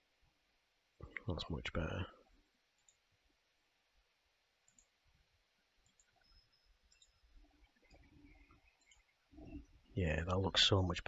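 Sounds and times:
computer mouse clicks: 0:02.8 - 0:03.0, 0:04.6 - 0:05.0, 0:05.8 - 0:07.2, 0:07.8 - 0:09.1.

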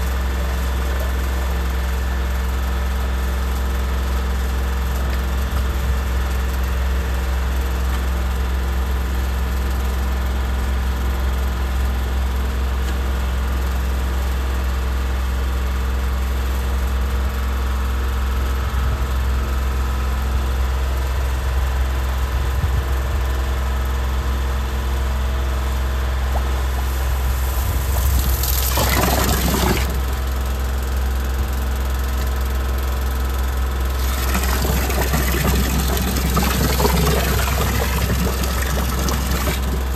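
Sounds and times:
water hose spraying: 0:26.3 - 0:30.2, 0:33.9 - 0:39.9.

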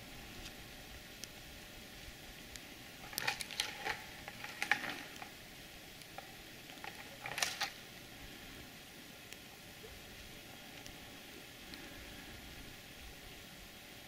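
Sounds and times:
dry twigs cracking and scraping: 0:02.5 - 0:05.4, 0:06.0 - 0:07.8.

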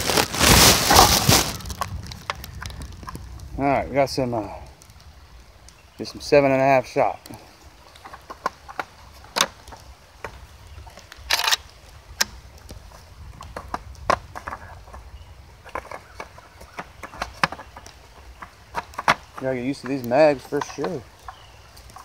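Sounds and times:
shotgun metallic clicks and clacks: 0:11.3 - 0:11.6.

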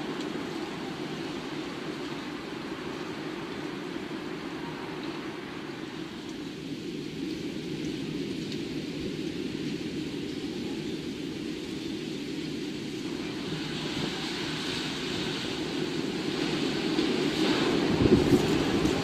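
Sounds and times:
rain: 0:00.0 - 0:19.0
wind rushing: 0:14.1 - 0:19.0.

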